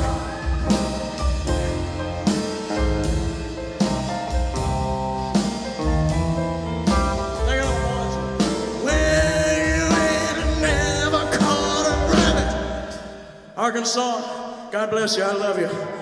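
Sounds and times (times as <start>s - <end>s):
drum hits: 0.0s - 13.1s
live rock band playing: 0.0s - 13.4s
person singing: 6.8s - 13.0s.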